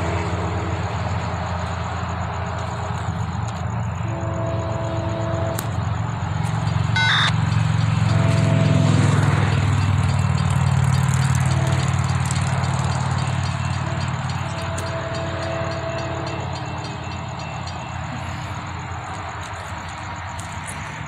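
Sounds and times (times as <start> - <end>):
diesel locomotive engines rumbling: 0.0 - 21.0
locomotive horn blasts: 3.8 - 6.0, 7.0 - 7.3, 7.9 - 9.6, 11.3 - 12.4, 13.7 - 17.3.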